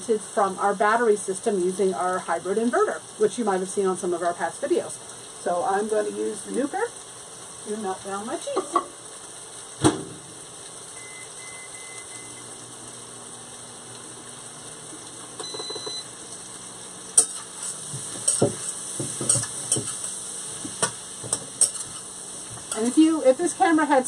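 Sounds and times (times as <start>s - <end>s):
vegetables sizzling in a skillet: 0.0s - 24.0s
microwave beeps: 10.9s - 12.6s, 15.4s - 16.2s
utensil scraping and clinking in pan: 17.1s - 23.0s.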